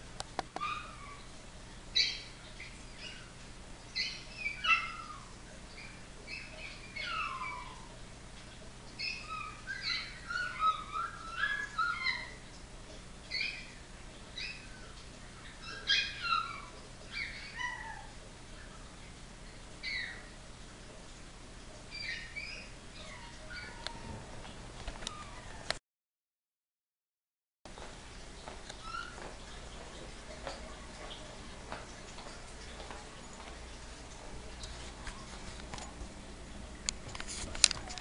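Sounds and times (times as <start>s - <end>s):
puppies whining and yipping: 0.6s - 1.3s, 1.9s - 8.0s, 9.0s - 12.6s, 13.2s - 18.9s, 19.8s - 20.4s, 21.9s - 25.8s, 28.7s - 29.7s, 34.8s - 35.6s.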